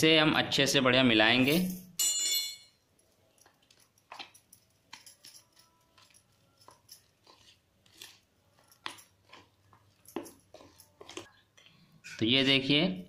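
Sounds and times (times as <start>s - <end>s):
spoon stirring thick paste: 5.7s - 12.8s.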